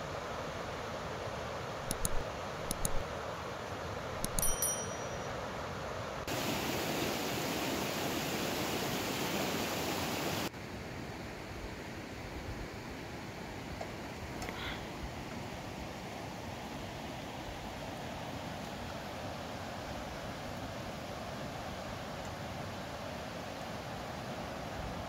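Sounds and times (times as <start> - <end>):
river water rushing: 0.2 - 10.5
light metallic clinks: 4.2 - 5.4.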